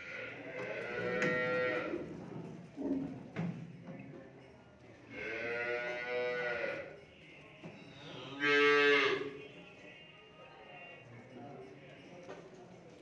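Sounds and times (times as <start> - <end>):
cattle mooing: 8.3 - 9.3.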